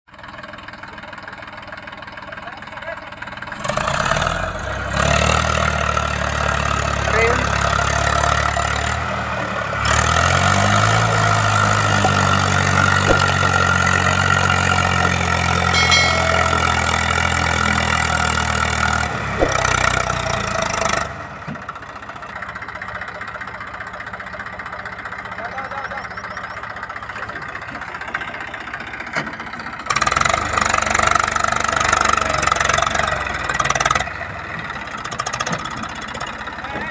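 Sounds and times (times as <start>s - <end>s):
tractor engine revving: 3.3s - 25.4s, 29.8s - 36.6s.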